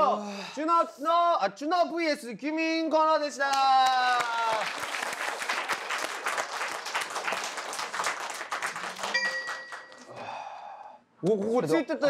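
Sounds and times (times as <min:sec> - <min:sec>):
people applauding: 0:03.5 - 0:10.4
electronic chime: 0:09.2 - 0:10.0.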